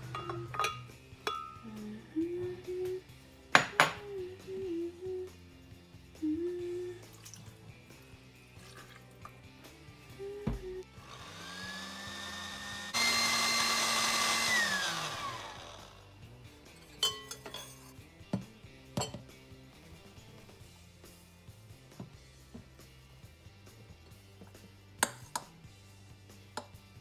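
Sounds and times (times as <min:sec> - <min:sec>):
blender motor whirring: 0:10.8 - 0:16.1.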